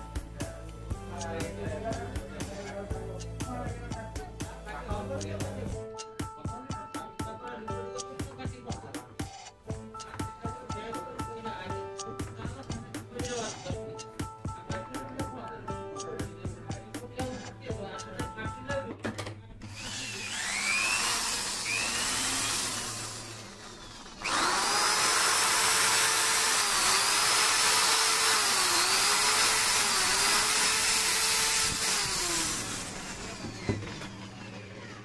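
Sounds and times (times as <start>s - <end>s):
electric drill whining: 19.6s - 35.0s.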